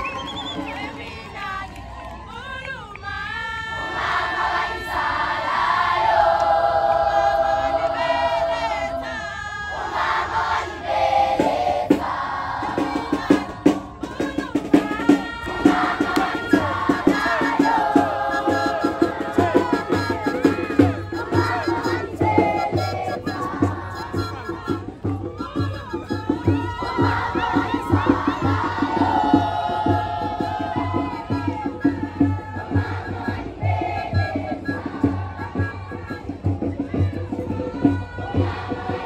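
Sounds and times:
choir singing in harmony: 3.0 - 39.0
sharp rhythmic beats: 9.9 - 39.0.

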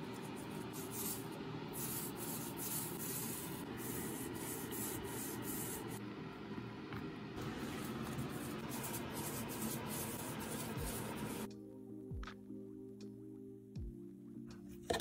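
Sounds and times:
paint roller scrubbing on wood: 7.4 - 11.5.

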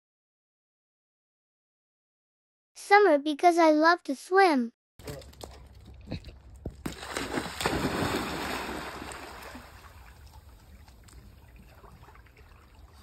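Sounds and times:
water sloshing and lapping: 5.5 - 13.0
dog splashing into pool: 6.8 - 13.0.

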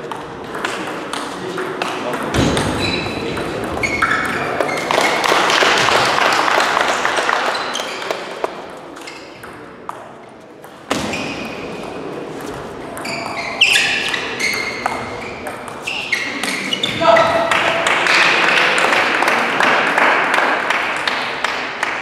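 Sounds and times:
voices in a hall: 0.0 - 22.0
shoes squeaking on floor: 2.5 - 5.3, 7.4 - 9.6, 10.9 - 17.6.

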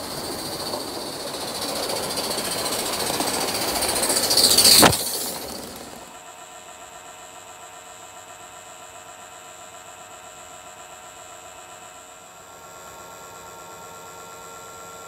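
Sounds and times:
steam locomotive hissing: 0.0 - 6.2.

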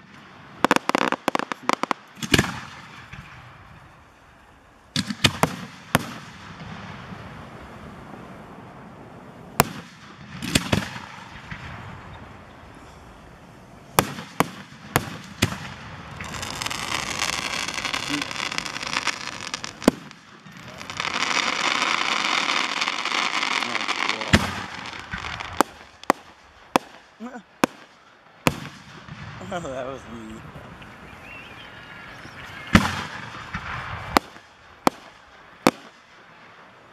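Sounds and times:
firework shells bursting: 0.0 - 3.6, 14.0 - 29.6
dense firework crackling: 0.0 - 31.1, 32.1 - 36.9.

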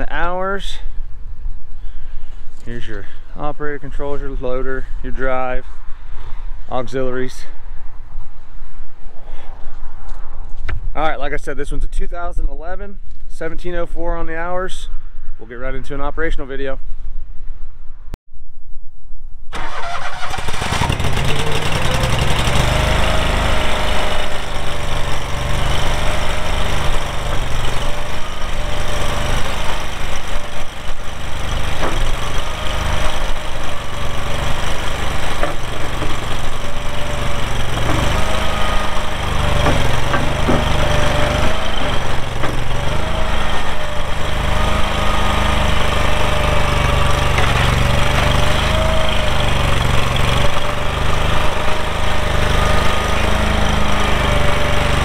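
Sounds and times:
gas engine running: 19.6 - 55.0.

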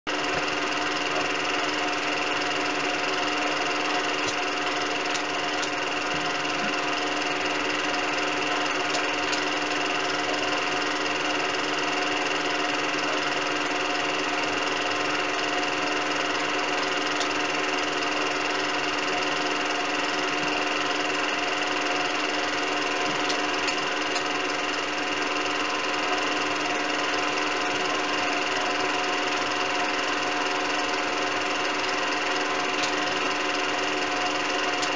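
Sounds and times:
film projector running: 0.1 - 34.9.

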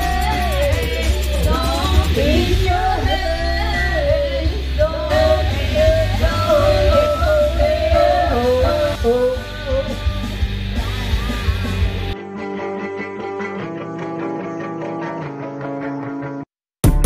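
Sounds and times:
woman singing through microphone: 0.0 - 11.5
amplified accompaniment with bass: 0.0 - 16.2.

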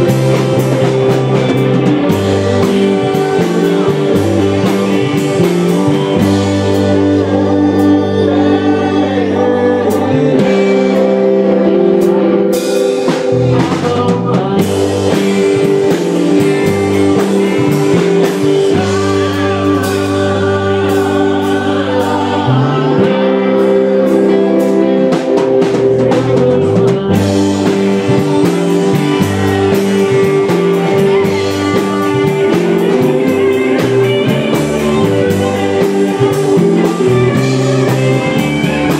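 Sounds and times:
man singing into a microphone: 0.0 - 11.8, 13.5 - 25.2
bass guitar: 0.0 - 38.9
drum kit with cymbal hits: 0.0 - 38.9
electric guitars: 0.0 - 38.9.

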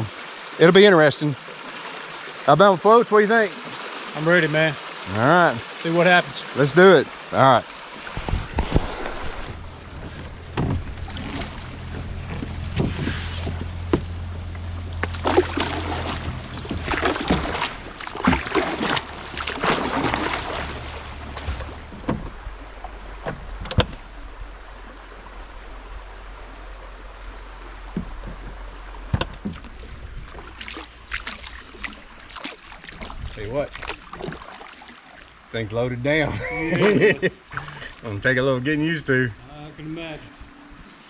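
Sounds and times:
paddle splashing in water: 3.5 - 35.5
sharp knocks: 9.9 - 14.2.

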